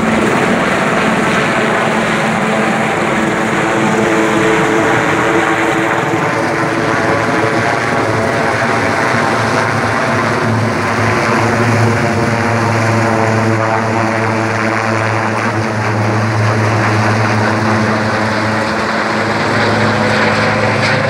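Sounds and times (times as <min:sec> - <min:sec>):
helicopter passing overhead: 0:00.0 - 0:21.0.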